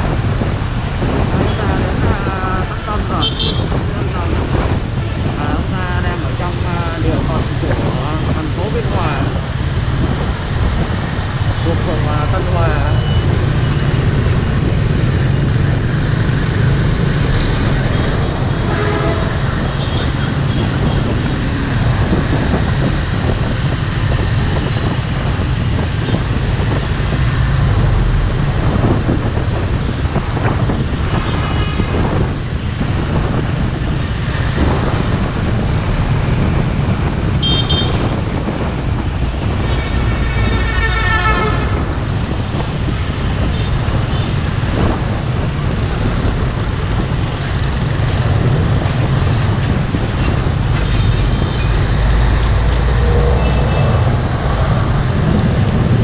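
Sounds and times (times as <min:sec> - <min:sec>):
road traffic rumble: 0:00.0 - 0:56.0
vehicle horns: 0:03.1 - 0:03.8, 0:17.9 - 0:21.1, 0:37.4 - 0:38.2, 0:39.6 - 0:42.0, 0:50.8 - 0:56.0.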